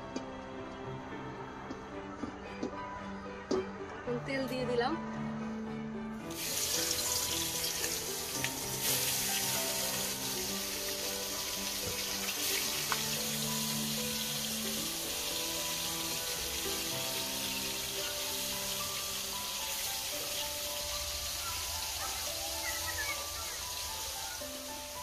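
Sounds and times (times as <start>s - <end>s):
background music: 0.0s - 25.0s
fish sizzling in hot oil: 6.3s - 25.0s.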